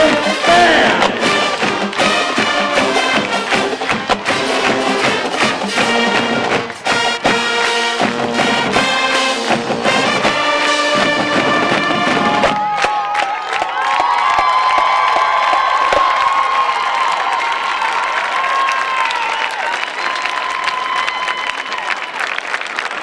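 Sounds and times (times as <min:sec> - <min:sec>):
bass drums: 0:00.0 - 0:12.8
brass instruments: 0:00.0 - 0:12.8
tenor drums: 0:00.0 - 0:12.9.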